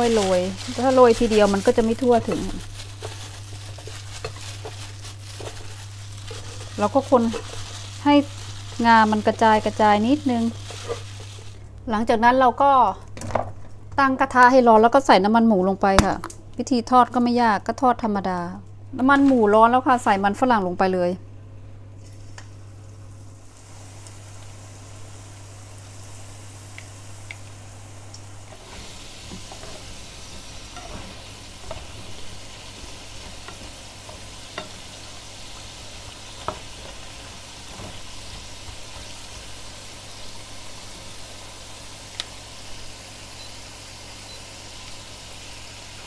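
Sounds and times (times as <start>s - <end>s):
potatoes sizzling in hot fat: 0.0s - 11.7s, 22.7s - 46.0s.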